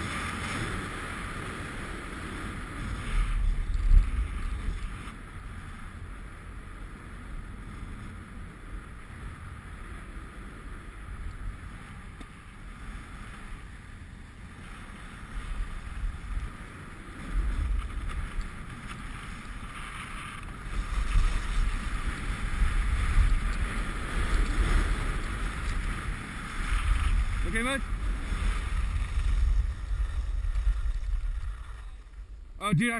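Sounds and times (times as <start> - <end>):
skis hissing over snow: 0.0 - 6.1, 12.4 - 32.4
wind buffeting microphone: 14.1 - 32.9.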